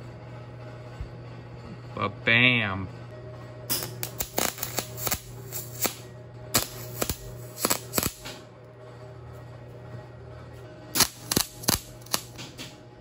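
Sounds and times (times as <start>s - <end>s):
arc welder crackling: 3.7s - 8.4s, 10.9s - 12.8s.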